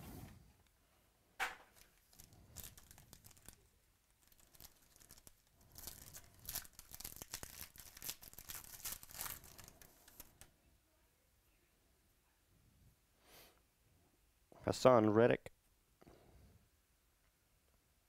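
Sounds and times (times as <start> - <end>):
foil wrapper tearing and crinkling: 1.8 - 10.4.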